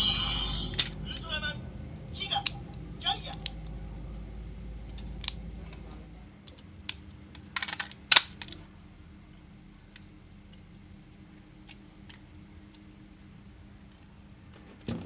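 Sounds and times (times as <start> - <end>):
plastic toy pieces clicking: 0.6 - 1.0, 6.4 - 8.7.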